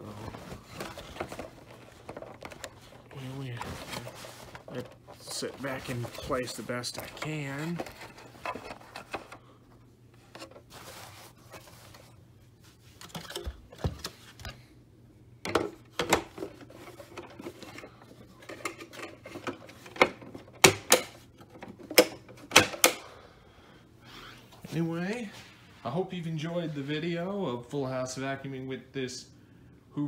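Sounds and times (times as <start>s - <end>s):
paper bag rustling: 0.0s - 9.6s, 10.2s - 14.4s.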